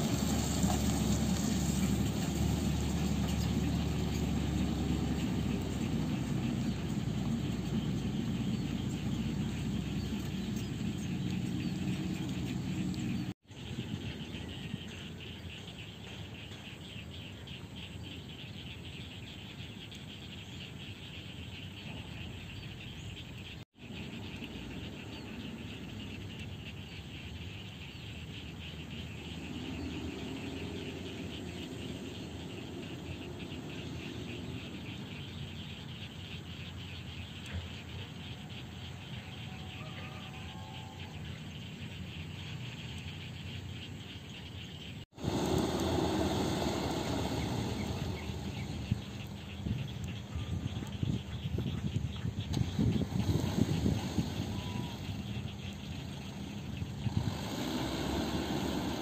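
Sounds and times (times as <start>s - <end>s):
diesel truck engine labouring: 0.0s - 13.4s, 45.1s - 59.0s
truck engine running low: 0.0s - 15.0s, 41.6s - 59.0s
crickets chirring: 23.8s - 59.0s.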